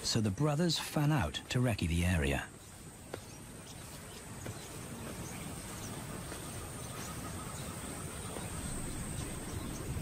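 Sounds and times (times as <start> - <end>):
background hiss: 0.0 - 10.0.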